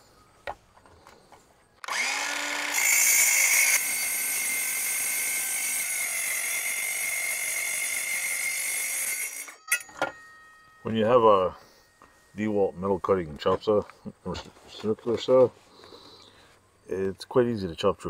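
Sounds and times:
circular saw cutting sheet metal: 0:01.9 - 0:09.8.

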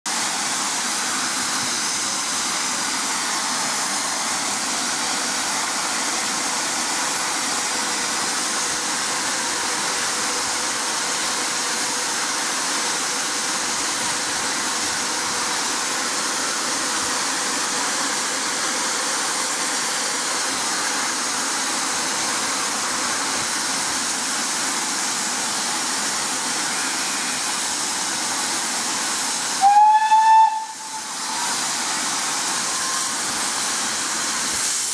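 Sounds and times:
steam hissing: 0:00.1 - 0:34.9
steam whistle: 0:29.6 - 0:31.7, 0:32.6 - 0:33.3.

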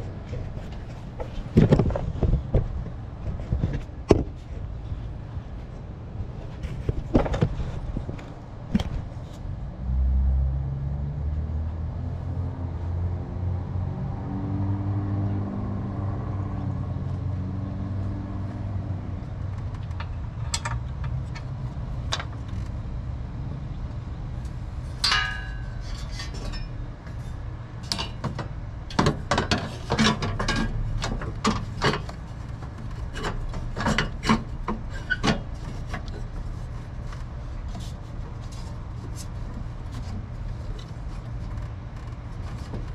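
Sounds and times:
hand tools clinking on metal: 0:25.0 - 0:26.7.

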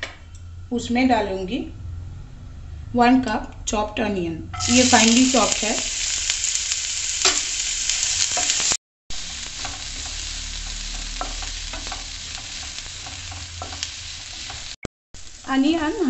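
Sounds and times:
spatula scraping a pan: 0:04.6 - 0:14.8
onions sizzling in oil: 0:04.6 - 0:16.0.

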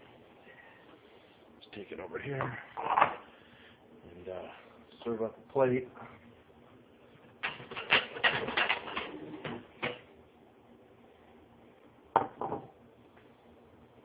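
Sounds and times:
plate knocking on plastic board: 0:12.2 - 0:12.7.

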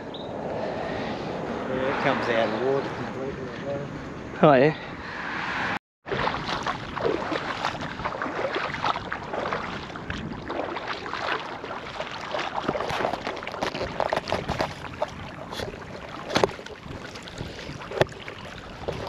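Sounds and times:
shallow water splashing: 0:06.0 - 0:19.0
wind buffeting microphone: 0:06.1 - 0:19.0.

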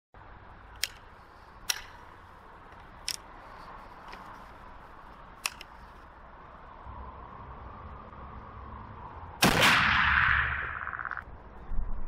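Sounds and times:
rifle action clicks: 0:00.8 - 0:02.0, 0:02.7 - 0:03.3, 0:05.4 - 0:05.9.

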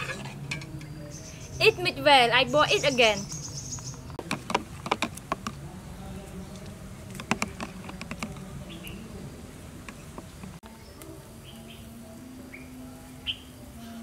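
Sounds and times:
metal spoon scraping a pot: 0:00.0 - 0:00.8.

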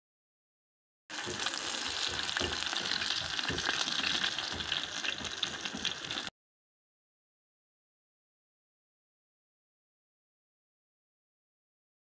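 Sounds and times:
fish sizzling in oil: 0:01.1 - 0:06.3.

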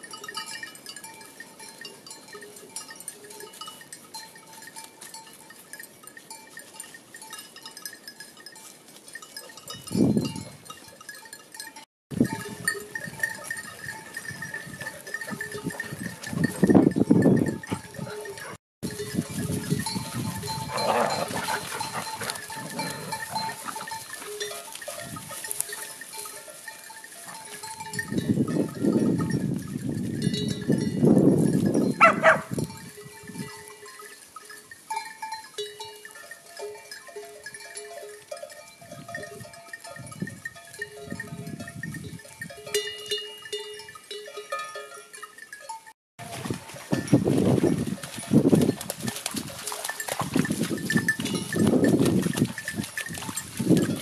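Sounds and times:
animal bells clinking: 0:00.0 - 0:54.0
animal call: 0:20.7 - 0:24.0.

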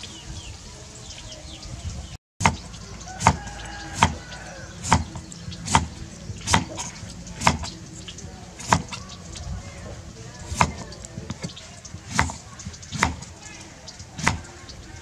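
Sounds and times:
steady background noise: 0:00.0 - 0:15.0
knife chopping on wooden board: 0:02.4 - 0:04.2, 0:04.8 - 0:07.7, 0:08.6 - 0:09.0, 0:10.5 - 0:13.3, 0:14.2 - 0:14.5.

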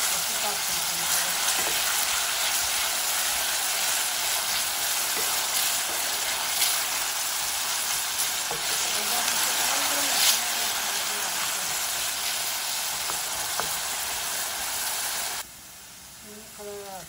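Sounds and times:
onion sizzling in oil: 0:00.0 - 0:17.0
wooden spoon scraping pan: 0:01.1 - 0:02.8, 0:04.3 - 0:11.8.

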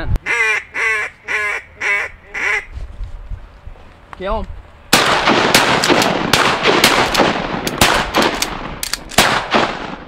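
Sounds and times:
shotguns firing: 0:04.9 - 0:10.0.

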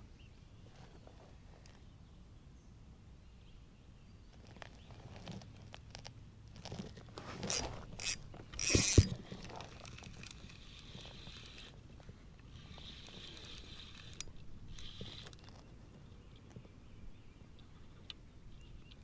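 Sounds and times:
mechanical clicks and handling knocks: 0:07.4 - 0:10.5
fishing reel cranking: 0:07.4 - 0:11.8, 0:12.6 - 0:15.5.

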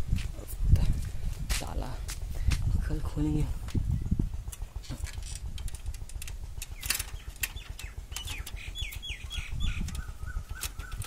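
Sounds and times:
bird chirping: 0:06.6 - 0:11.0.

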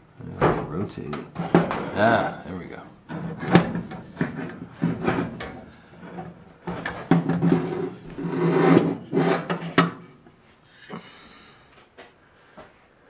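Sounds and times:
metal parts scraping and rubbing: 0:03.1 - 0:09.8.

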